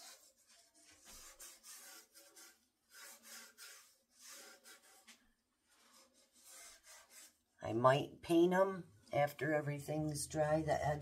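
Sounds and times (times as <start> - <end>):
gloved hand smearing paint: 0.0 - 7.4.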